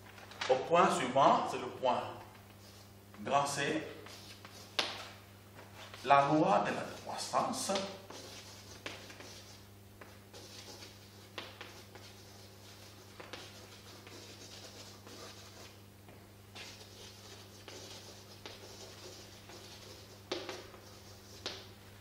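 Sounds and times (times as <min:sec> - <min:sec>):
low electrical hum: 0:00.0 - 0:22.0
chalk scratching on blackboard: 0:04.0 - 0:05.1, 0:06.8 - 0:15.8, 0:16.6 - 0:21.7.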